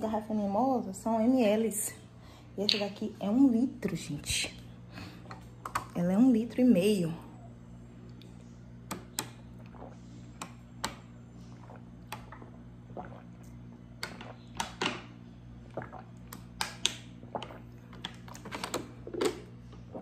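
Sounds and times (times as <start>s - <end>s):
person gulping: 9.5s - 10.3s, 11.4s - 14.4s, 15.6s - 16.4s, 17.2s - 18.4s.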